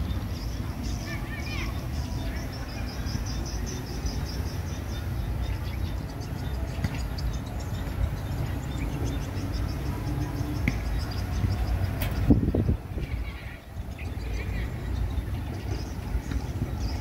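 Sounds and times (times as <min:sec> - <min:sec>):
wind buffeting microphone: 0:05.0 - 0:17.0.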